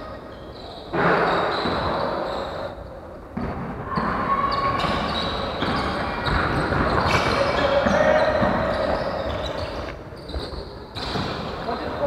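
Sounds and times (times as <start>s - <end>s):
basketball bouncing on wooden floor: 3.4s - 9.1s.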